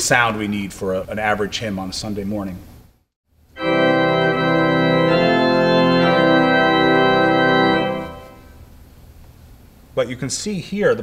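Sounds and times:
pipe organ playing chords: 3.6s - 8.6s.

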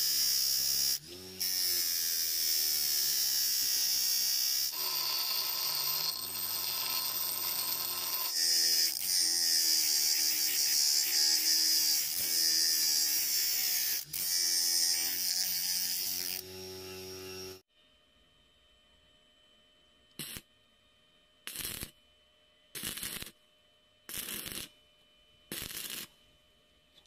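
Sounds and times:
metal grinding on grinder wheel: 4.7s - 9.0s
bench grinder motor hum: 4.7s - 10.4s.

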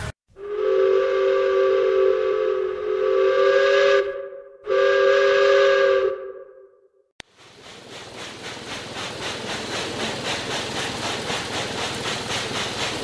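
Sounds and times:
steam locomotive whistle: 0.4s - 7.0s.

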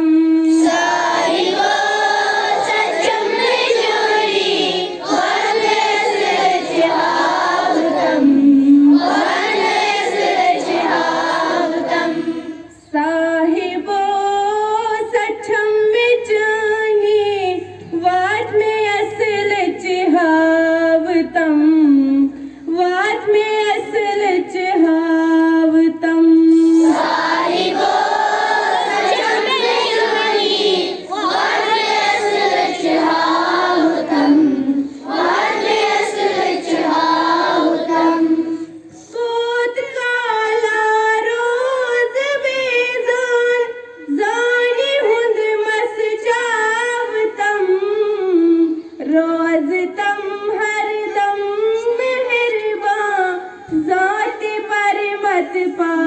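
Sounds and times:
children singing together: 0.0s - 12.9s, 26.5s - 39.2s.

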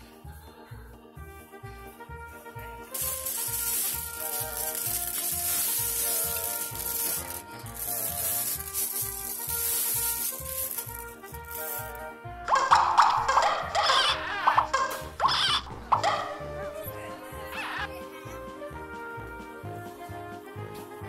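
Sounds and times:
background music with beat: 0.0s - 21.0s
tumbled stones clattering: 2.9s - 12.0s.

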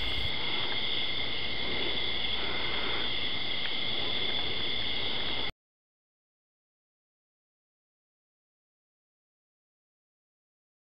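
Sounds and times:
crickets chirring: 0.0s - 5.5s
hiss: 0.0s - 5.5s.

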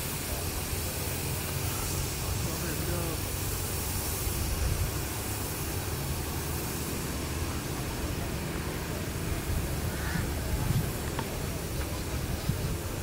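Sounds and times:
wind buffeting microphone: 3.2s - 13.0s.

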